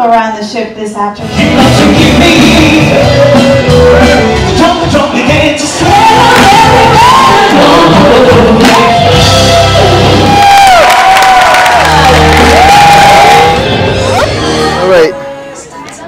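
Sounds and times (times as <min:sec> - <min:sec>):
person singing: 0:01.2 - 0:10.3
live rock band: 0:01.2 - 0:15.0.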